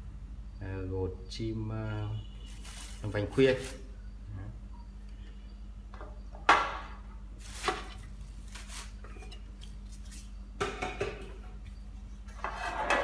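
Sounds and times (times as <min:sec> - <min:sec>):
plastic bag rustling: 0:02.5 - 0:03.9, 0:07.4 - 0:09.1.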